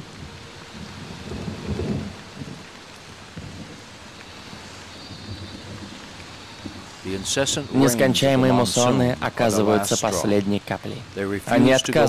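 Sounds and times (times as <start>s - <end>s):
low thunder rumble: 0.0s - 7.8s
heavy rain pouring: 0.0s - 12.0s.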